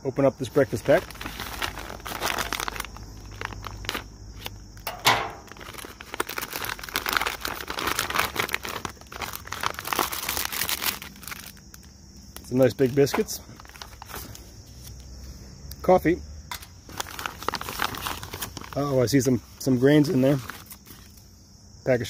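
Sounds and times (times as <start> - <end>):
plastic bag crinkling: 0.6 - 14.4, 16.9 - 19.2.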